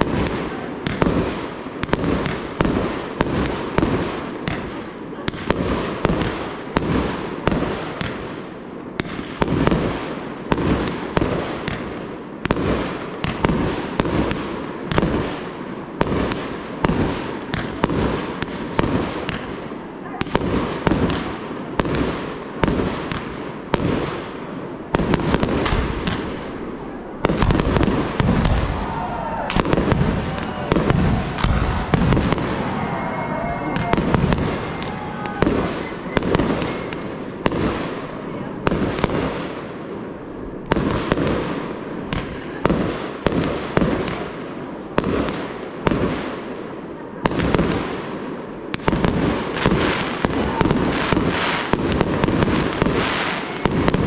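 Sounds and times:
fireworks bangs: 0.0 - 54.0.

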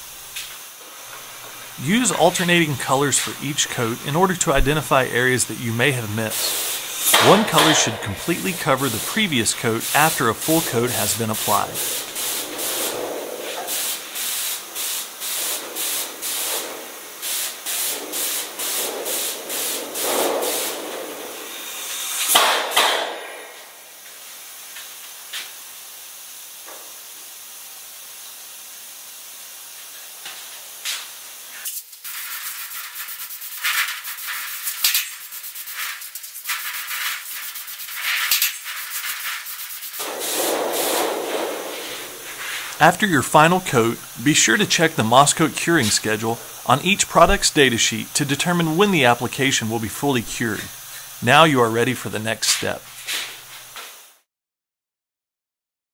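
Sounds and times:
low steady background noise: 0.0 - 18.4, 41.7 - 53.0
spray gun hissing in bursts: 0.0 - 54.2.

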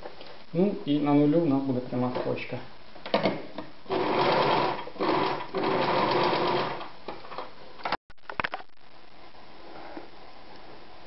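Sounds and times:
sewing machine stitching: 3.9 - 6.9.

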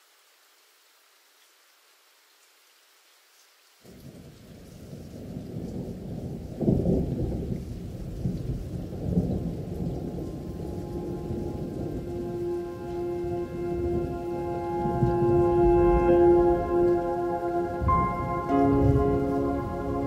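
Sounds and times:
faint rain hiss: 0.0 - 20.0
thunder rumbling: 5.2 - 20.0.

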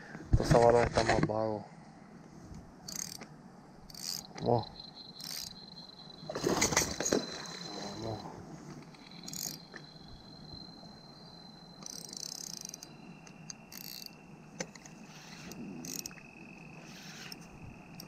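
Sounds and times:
fishing reel cranking: 2.9 - 3.2, 3.9 - 4.3, 5.2 - 5.5, 11.8 - 12.9, 13.7 - 14.1, 15.2 - 16.2
thin high tone: 4.4 - 14.2.

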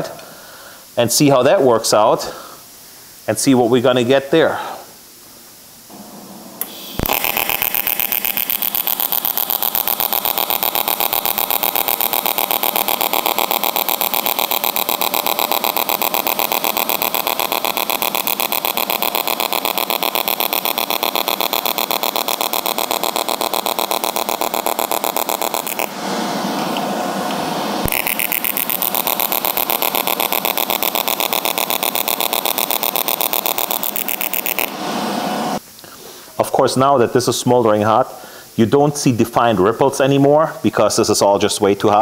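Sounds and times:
welding arc pulsing buzz: 5.9 - 35.6
welding arc striking click: 6.6 - 25.9, 27.8 - 34.7.

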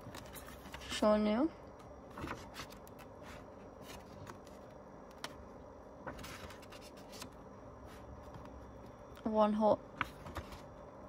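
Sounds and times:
page turning rustle: 2.1 - 5.3, 6.1 - 7.4, 10.0 - 10.7.

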